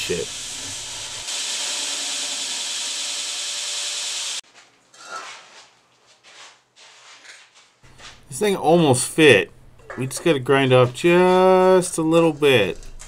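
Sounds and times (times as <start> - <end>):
belt grinder grinding brick: 0.0 - 4.4.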